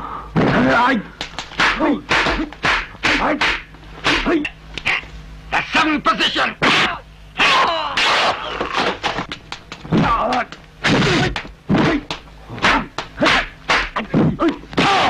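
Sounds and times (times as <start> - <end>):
punch and block impacts: 1.6 - 4.4, 10.8 - 14.0, 14.8 - 15.0
fighters shouting and grunting: 1.6 - 4.5, 6.4 - 8.5, 9.9 - 15.0.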